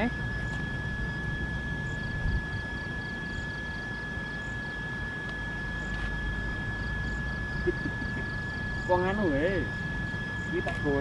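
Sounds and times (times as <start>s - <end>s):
steady high-pitched tone: 0.0s - 11.0s.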